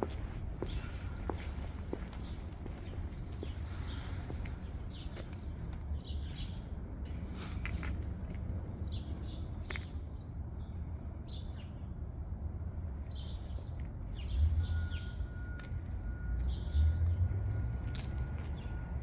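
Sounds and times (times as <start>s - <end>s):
small birds chirping: 0.0s - 6.8s
low rumble of street noise: 0.0s - 19.0s.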